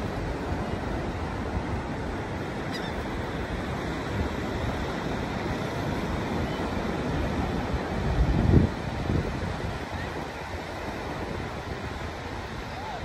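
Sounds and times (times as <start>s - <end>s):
ocean waves breaking: 0.0s - 13.0s
gull call: 2.7s - 3.0s.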